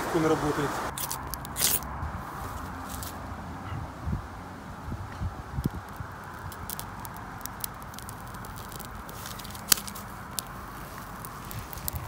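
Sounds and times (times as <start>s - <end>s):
fire rod scraping: 6.3s - 12.0s.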